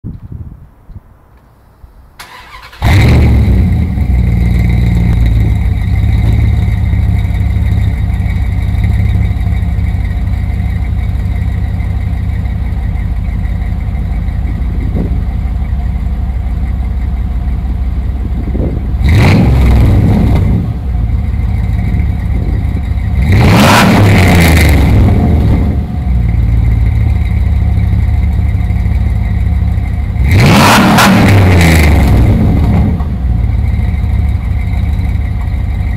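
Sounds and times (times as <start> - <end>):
truck engine starting and idling: 2.1 - 35.9
engine revving: 2.2 - 7.7, 18.4 - 20.9, 21.5 - 27.2, 30.1 - 33.6.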